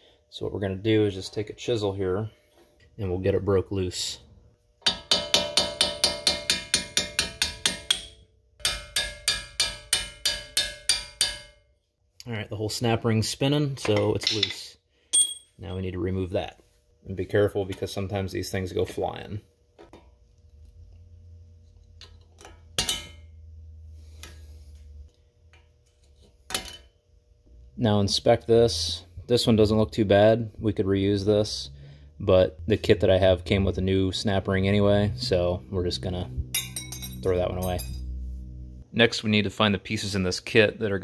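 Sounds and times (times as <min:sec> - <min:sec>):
low hum: 0:15.2 - 0:39.3
metal snap ring clicking and clinking: 0:36.5 - 0:38.1.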